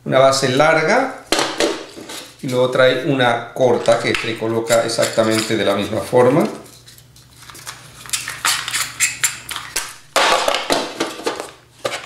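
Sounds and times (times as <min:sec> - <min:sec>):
rustling scrape: 0:01.9 - 0:02.6.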